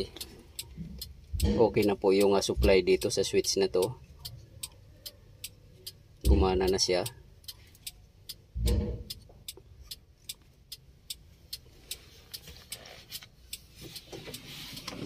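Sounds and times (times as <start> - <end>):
low thump: 6.2 - 6.6, 8.6 - 9.1.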